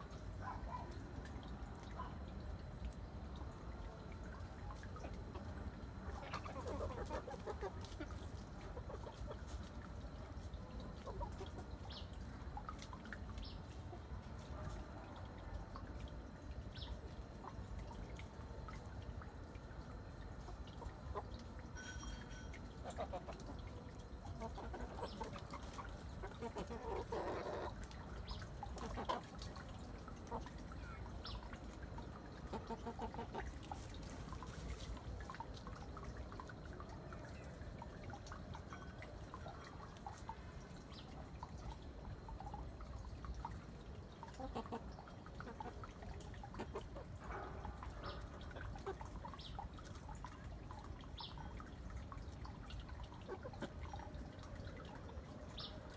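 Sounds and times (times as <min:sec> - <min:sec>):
chickens clucking: 0:04.7 - 0:15.0, 0:20.3 - 0:29.6, 0:31.2 - 0:36.6, 0:44.1 - 0:50.0, 0:53.2 - 0:53.8
pecking and scratching in leaves: 0:06.0 - 0:11.7, 0:32.4 - 0:35.9.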